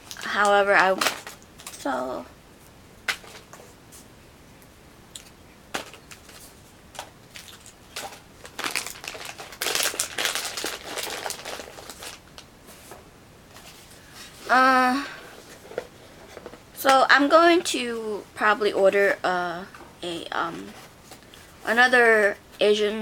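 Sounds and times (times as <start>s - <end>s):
snack packaging crinkling: 5.2s - 12.5s.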